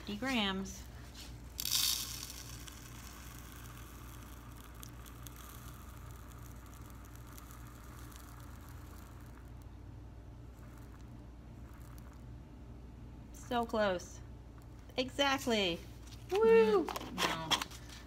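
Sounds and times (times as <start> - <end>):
pellets pouring into beaker: 1.4 - 9.6, 10.5 - 12.2.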